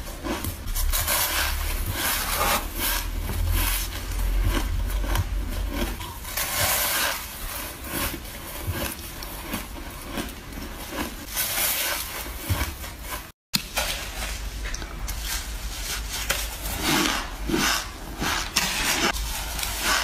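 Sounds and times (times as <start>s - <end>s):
teeth crunching shaved ice: 0.0s - 13.2s.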